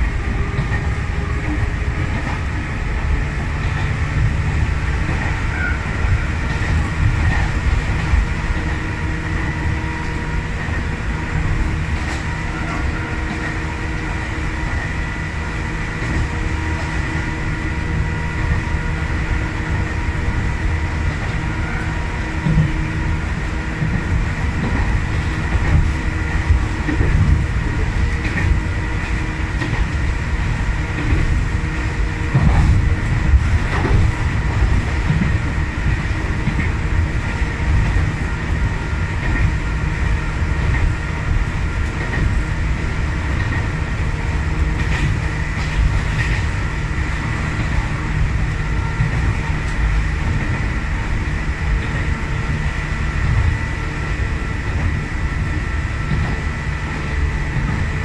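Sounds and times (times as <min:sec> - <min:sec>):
train wheels rumbling: 0:00.0 - 0:58.0
wheels clacking over rail joints: 0:17.8 - 0:53.6.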